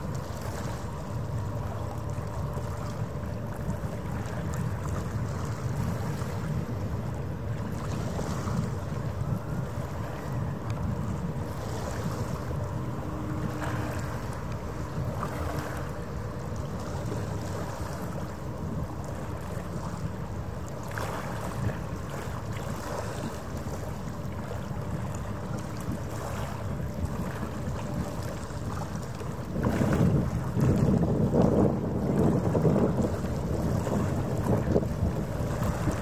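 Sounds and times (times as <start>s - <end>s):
wind rumbling on microphone: 0.0s - 36.0s
ferry engines droning: 8.9s - 20.8s.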